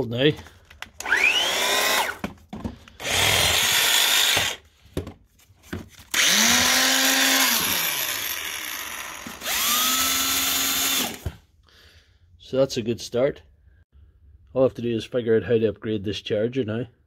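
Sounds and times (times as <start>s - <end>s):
cordless drill spinning: 0.7s - 4.7s, 6.1s - 11.4s
power tool motor whirring: 1.0s - 2.2s, 3.0s - 4.6s, 6.1s - 11.4s.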